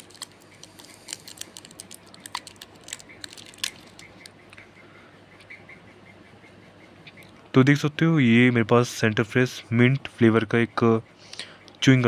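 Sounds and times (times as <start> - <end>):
foil wrapper crinkling: 0.0 - 4.3.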